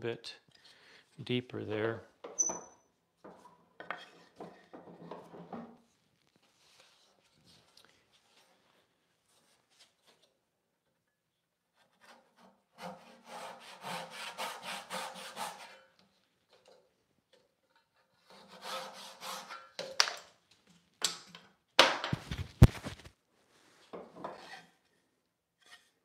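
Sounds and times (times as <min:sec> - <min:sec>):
hand saw cutting wood: 0:11.8 - 0:15.9, 0:18.1 - 0:19.8.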